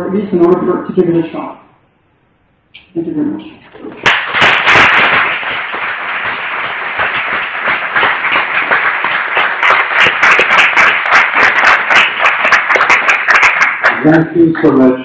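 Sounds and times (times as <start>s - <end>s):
audience applauding: 4.0s - 14.1s.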